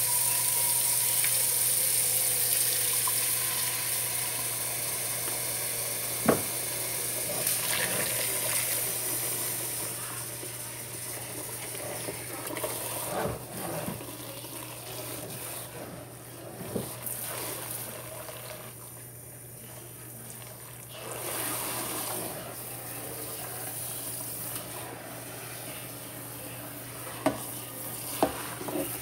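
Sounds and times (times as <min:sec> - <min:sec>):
tap water running into metal sink: 0:00.0 - 0:09.8.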